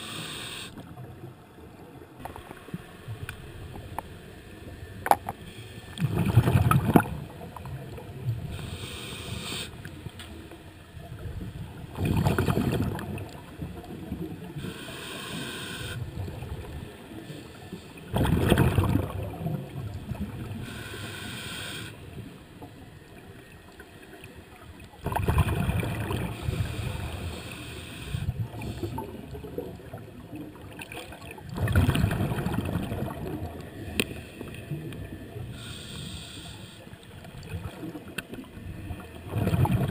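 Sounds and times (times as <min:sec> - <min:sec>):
regulator hissing on inhale: 0:00.0 - 0:00.8, 0:05.4 - 0:06.0, 0:08.4 - 0:09.9, 0:14.6 - 0:16.1, 0:20.5 - 0:22.0, 0:26.3 - 0:29.2, 0:35.4 - 0:37.1
exhaled bubbles gurgling: 0:05.9 - 0:08.6, 0:11.0 - 0:14.7, 0:18.0 - 0:20.6, 0:25.0 - 0:27.4, 0:28.2 - 0:35.5, 0:37.4 - 0:39.9.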